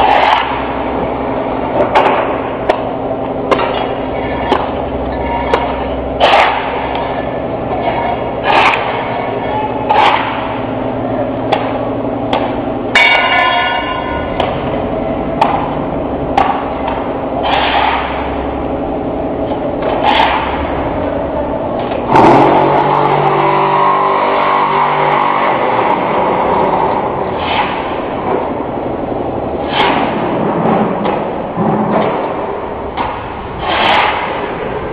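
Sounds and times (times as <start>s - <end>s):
metal parts clanking: 3.6s - 10.7s.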